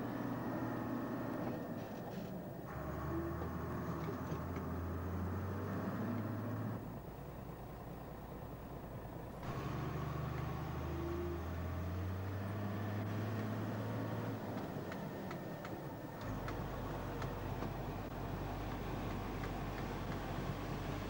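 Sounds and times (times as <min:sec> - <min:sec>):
diesel engine drone: 0:00.0 - 0:21.0.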